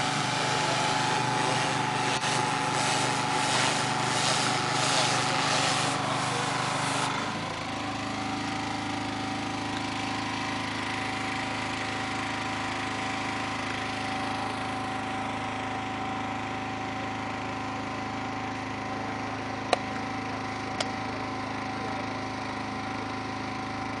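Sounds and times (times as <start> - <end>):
loud hiss: 0.0 - 7.1
small engine humming: 0.0 - 24.0.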